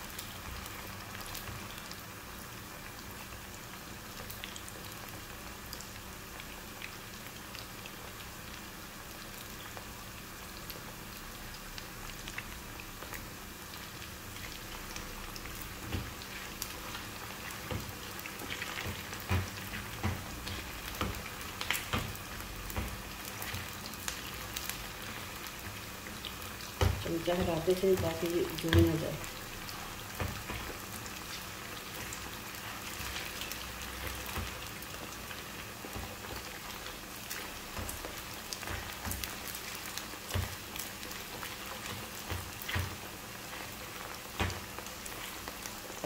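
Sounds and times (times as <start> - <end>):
chicken sizzling in hot oil: 0.0 - 46.0
spatula stirring in a pan: 11.8 - 46.0.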